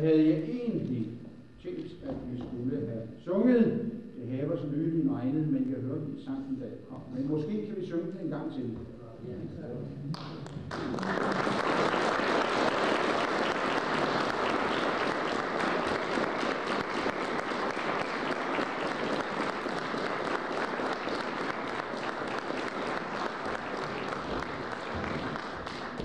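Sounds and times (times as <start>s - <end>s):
audience applauding: 10.2s - 26.0s.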